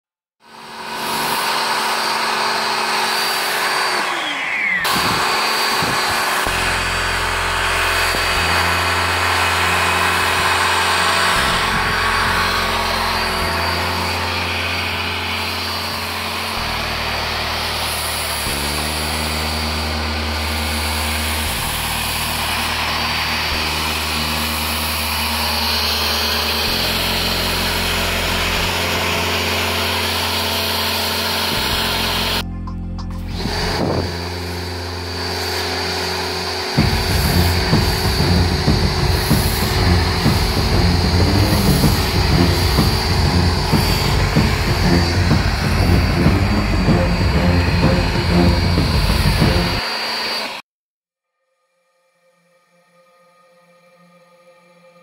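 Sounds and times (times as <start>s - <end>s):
motor winding down: 0.4s - 50.6s
pressure washer spray hiss: 33.7s - 49.7s.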